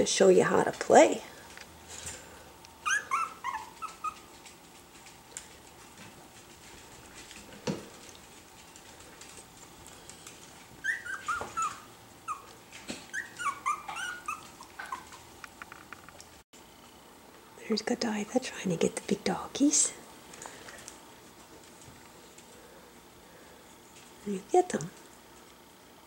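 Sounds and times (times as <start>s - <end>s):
puppies giving high calls: 2.8s - 4.4s, 10.8s - 15.3s.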